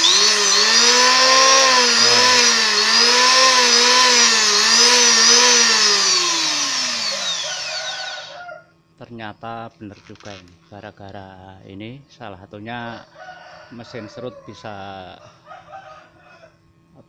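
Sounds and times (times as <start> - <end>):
electric hand planer running: 0.0 - 8.4.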